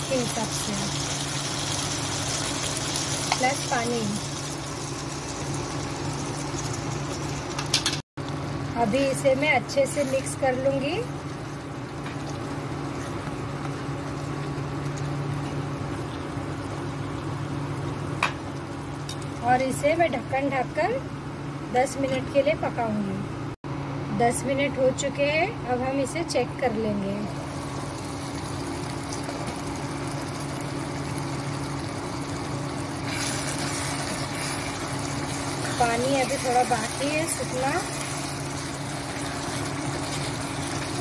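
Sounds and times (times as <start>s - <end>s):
induction cooktop humming: 0.0s - 41.0s.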